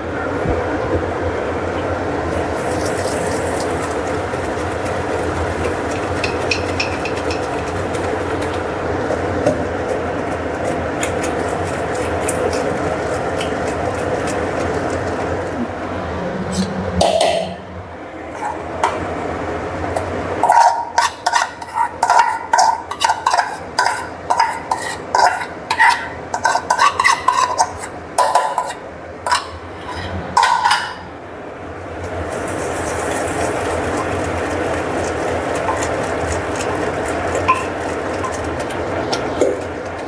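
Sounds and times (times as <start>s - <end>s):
meat sizzling in a pot: 2.3s - 15.6s, 32.0s - 40.0s.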